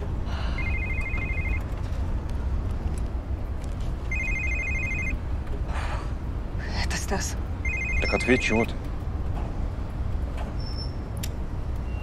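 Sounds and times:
mobile phone ringing: 0:00.6 - 0:01.7, 0:04.1 - 0:05.2, 0:07.6 - 0:08.6.

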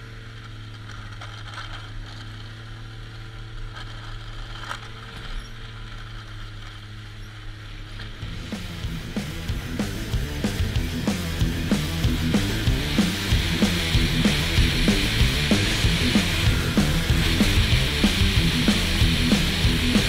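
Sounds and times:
snowmobile engine running: 0:00.0 - 0:20.0
sharp clicks from sled: 0:00.2 - 0:08.2.

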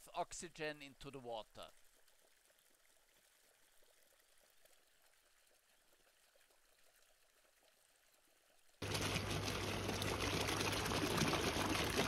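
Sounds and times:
water bubbling and splashing: 0:01.6 - 0:07.9, 0:08.7 - 0:12.0.

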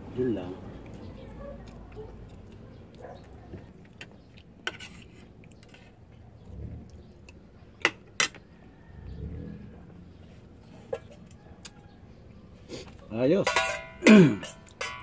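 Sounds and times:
spoons clinking on plates: 0:13.4 - 0:15.0.

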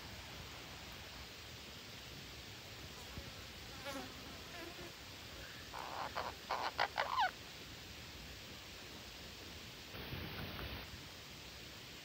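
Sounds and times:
parakeets calling harshly: 0:05.7 - 0:07.3.

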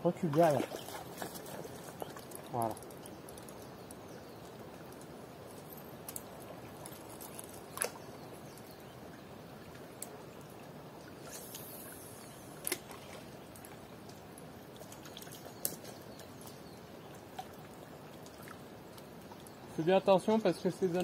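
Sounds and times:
water lapping at shore: 0:00.0 - 0:03.7, 0:04.3 - 0:19.8.

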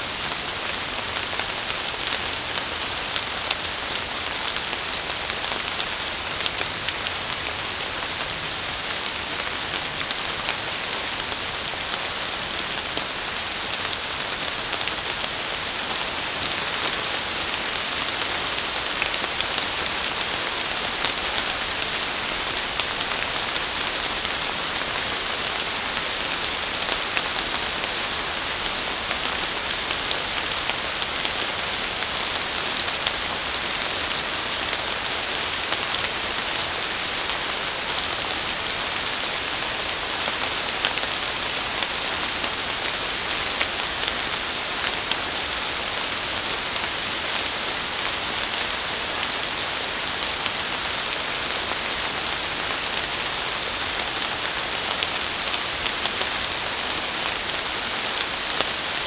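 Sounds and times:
steady rain hiss: 0:00.0 - 0:59.0.

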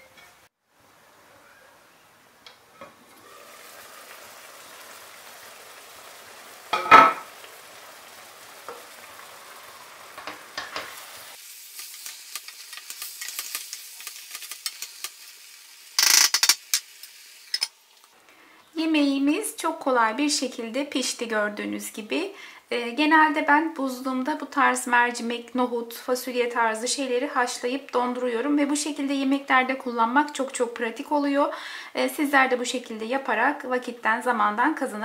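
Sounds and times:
stew simmering with soft sizzle: 0:00.7 - 0:18.2.

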